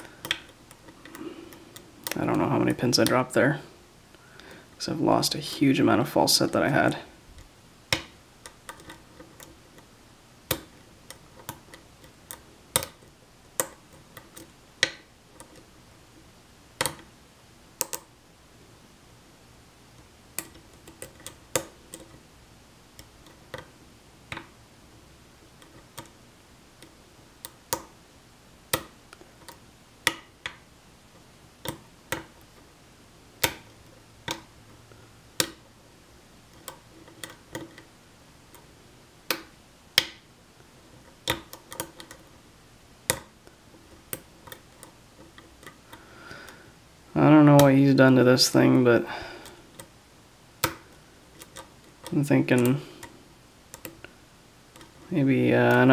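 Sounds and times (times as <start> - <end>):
lock pick clicking on pins: 0.0 - 2.4, 7.9 - 9.9, 10.5 - 15.7, 16.8 - 17.1, 17.8 - 18.1, 20.0 - 22.2, 25.6 - 26.2, 28.7 - 30.6, 33.4 - 34.5, 35.4 - 35.6, 36.5 - 37.9, 41.0 - 42.3, 43.1 - 46.0, 50.6 - 54.1.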